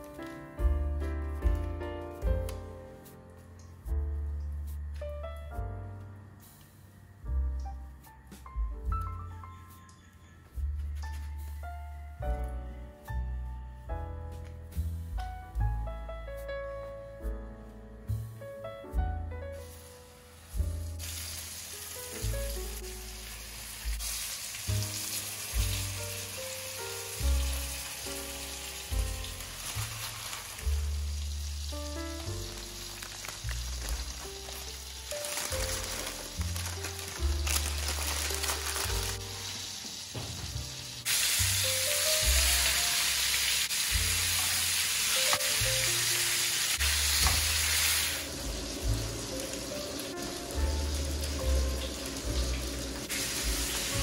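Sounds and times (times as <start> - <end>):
gentle piano music: 0.0 - 54.0
chicken sizzling in hot oil: 19.6 - 54.0.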